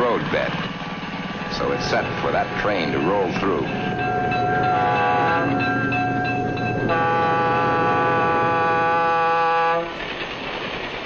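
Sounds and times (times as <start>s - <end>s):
locomotive air horn: 1.4s - 3.6s, 4.6s - 5.9s, 6.8s - 10.0s.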